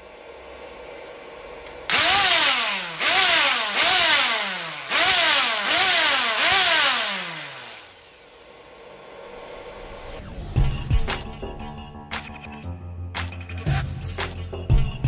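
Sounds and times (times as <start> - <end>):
angle grinder whining: 1.7 - 8.8.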